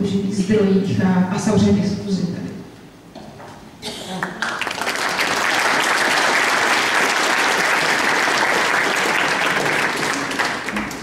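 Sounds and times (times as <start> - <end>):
audience clapping: 4.2 - 11.0.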